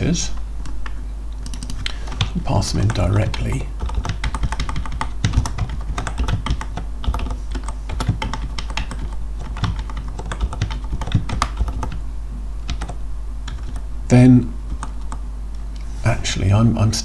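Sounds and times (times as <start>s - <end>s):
low steady hum: 0.0s - 17.0s
typing on computer keyboard: 1.4s - 12.0s, 12.7s - 13.8s, 14.7s - 15.2s.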